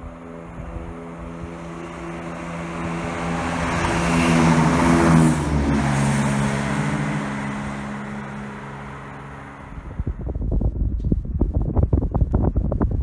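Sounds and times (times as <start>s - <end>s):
diesel train engines droning: 0.0s - 10.3s.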